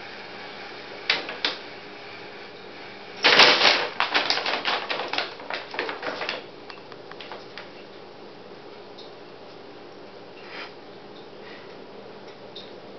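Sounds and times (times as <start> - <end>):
paper bag crinkling: 3.2 - 6.5.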